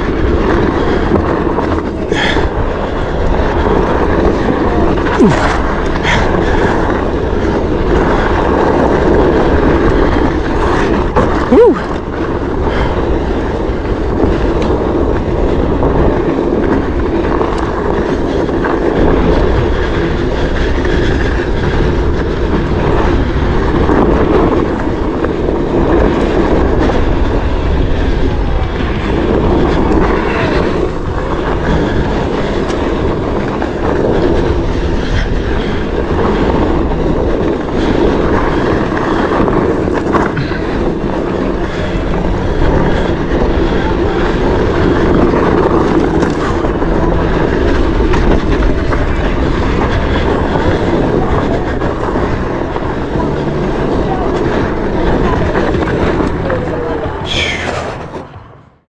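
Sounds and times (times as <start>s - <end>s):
tyre rolling over gravel: 0.0s - 58.4s
wind on microphone: 0.0s - 58.9s.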